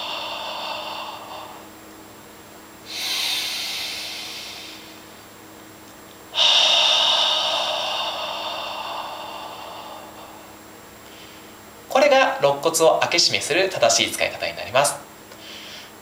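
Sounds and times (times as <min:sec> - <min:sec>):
person breathing: 0:00.0 - 0:01.7, 0:02.9 - 0:05.2, 0:06.3 - 0:11.6, 0:15.4 - 0:16.0.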